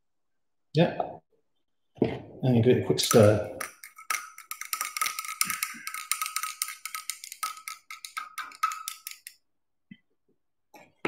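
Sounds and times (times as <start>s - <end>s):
glass rod clinking in beaker: 3.1s - 9.4s.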